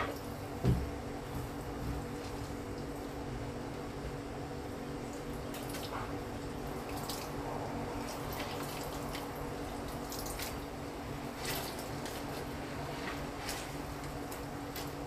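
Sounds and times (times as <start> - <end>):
steady low hum: 0.0 - 15.0
juice dripping into water: 4.7 - 12.4.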